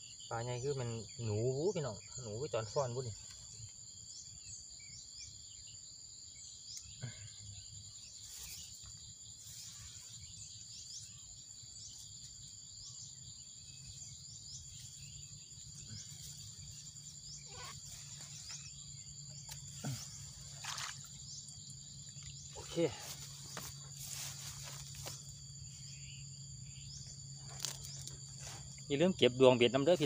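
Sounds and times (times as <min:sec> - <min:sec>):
insects trilling: 0:00.0 - 0:30.0
rustling grass: 0:22.6 - 0:25.9.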